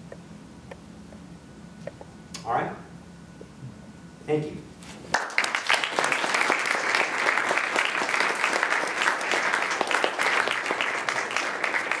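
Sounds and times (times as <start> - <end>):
audience applauding: 5.1 - 12.0.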